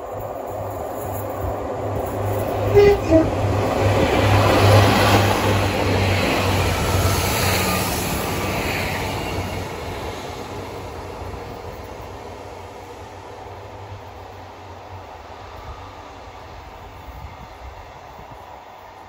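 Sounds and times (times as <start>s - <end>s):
train passing with rumble: 0.0s - 19.0s
train horn notes: 2.7s - 3.7s.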